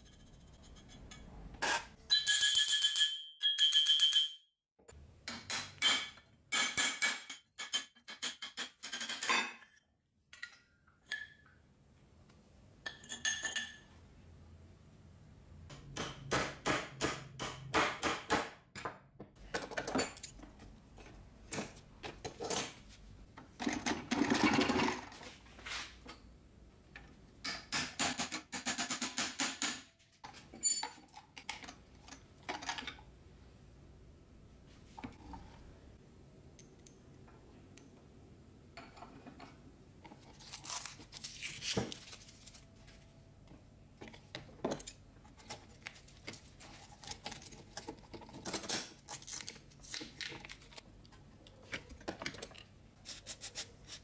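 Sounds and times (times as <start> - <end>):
metal tools clinking and scraping: 30.2 - 32.2.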